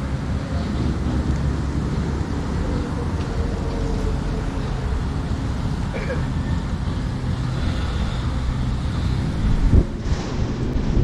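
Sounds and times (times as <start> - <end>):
wind buffeting microphone: 8.3 - 11.0.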